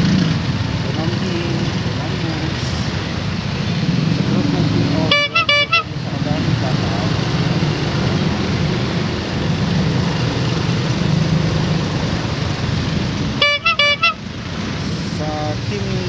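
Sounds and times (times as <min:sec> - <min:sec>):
road noise: 0:00.0 - 0:16.0
vehicle horn toots: 0:05.0 - 0:05.9, 0:13.4 - 0:14.2.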